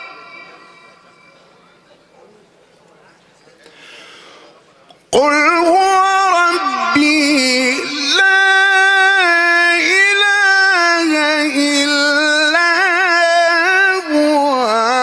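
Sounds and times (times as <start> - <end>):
man chanting through a microphone: 5.0 - 15.0.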